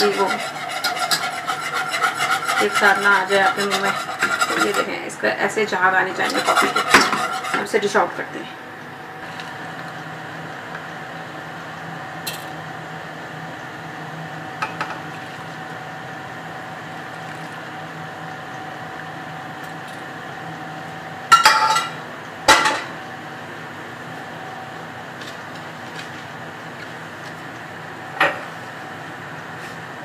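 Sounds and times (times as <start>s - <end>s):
dishes clinking: 21.3s - 22.9s.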